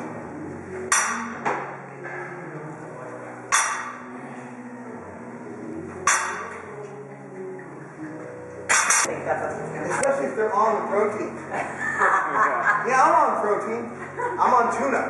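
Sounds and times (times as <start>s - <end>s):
background music: 0.0s - 15.0s
weights clanking: 8.7s - 9.1s.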